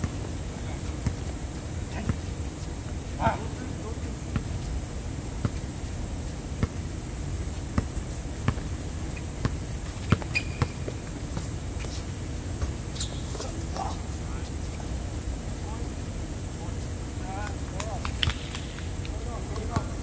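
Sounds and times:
basketball bouncing on hard court: 6.6 - 6.8, 7.8 - 8.7, 9.4 - 11.5, 19.5 - 20.0.

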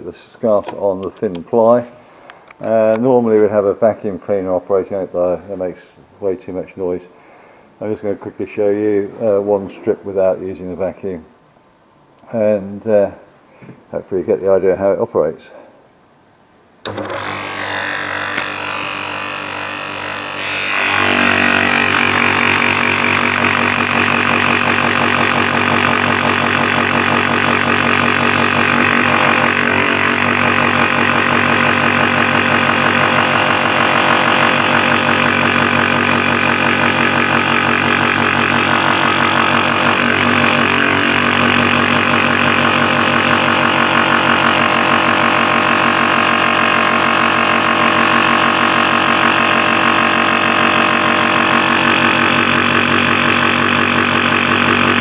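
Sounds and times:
bench grinder running: 16.9 - 55.0
sanding drum cutting plywood: 16.9 - 55.0.

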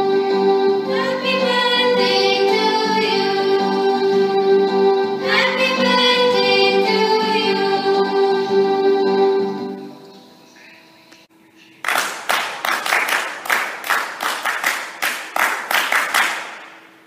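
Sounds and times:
song with singing and instruments: 0.0 - 10.4
rhythmic clapping: 11.6 - 16.9.

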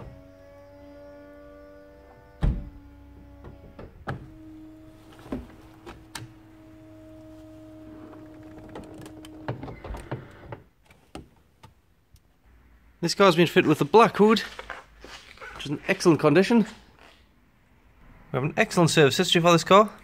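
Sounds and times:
electric motor whining: 0.0 - 10.5.

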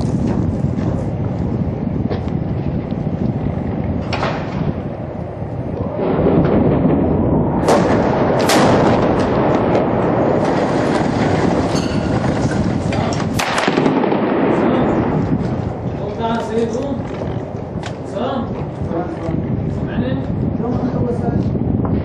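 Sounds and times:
heavy echoing gunfire: 6.0 - 15.8
loud sharp cracks: 7.6 - 11.7, 12.4 - 15.6.

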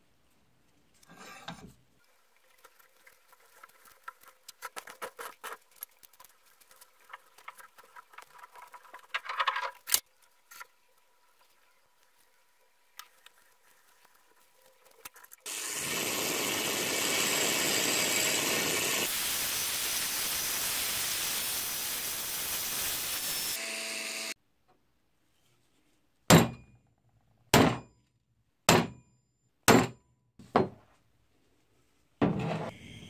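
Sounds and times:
power tool grinding steel: 15.5 - 24.4
hammer strikes on metal: 26.3 - 26.7, 27.6 - 27.9, 28.7 - 29.0, 29.7 - 30.0.

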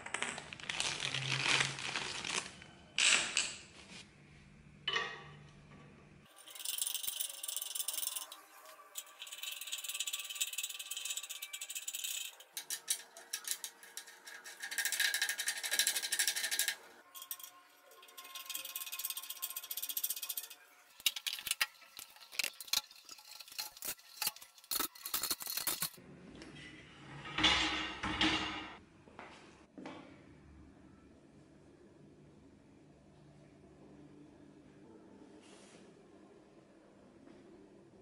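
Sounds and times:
metal table frame rattling: 6.3 - 26.0, 27.1 - 28.8
table thud: 27.3 - 28.8.

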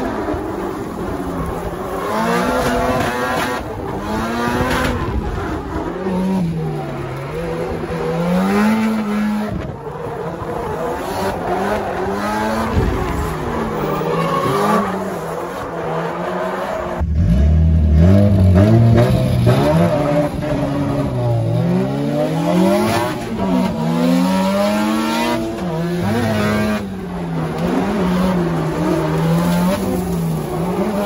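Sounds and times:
car engines revving: 0.0 - 31.0
tyre squeal: 9.8 - 16.9.

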